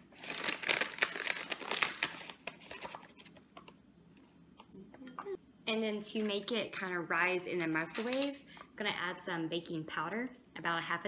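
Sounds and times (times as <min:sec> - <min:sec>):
packet crinkling and rustling: 0:00.0 - 0:03.4.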